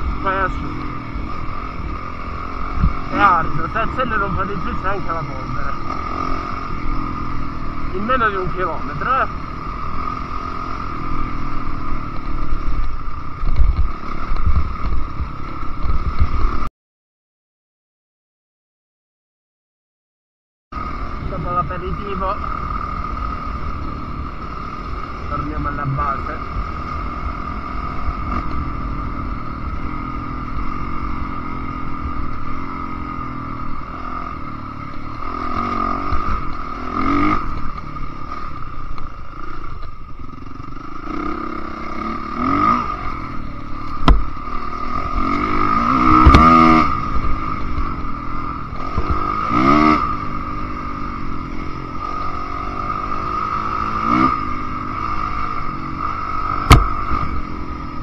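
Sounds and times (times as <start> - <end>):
dirt bike engine revving: 0.0 - 16.7, 20.8 - 58.0
sharp knock: 44.0 - 44.3, 56.6 - 57.3.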